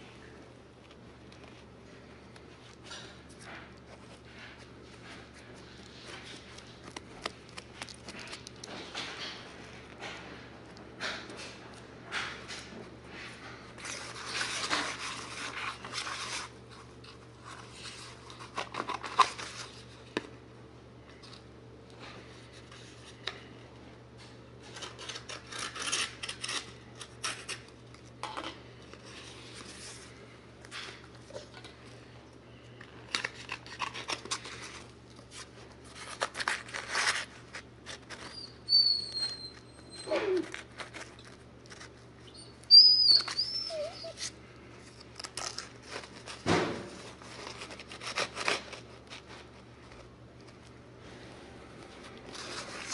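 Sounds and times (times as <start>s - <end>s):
dog whining: 38.2s - 40.7s, 42.2s - 44.4s.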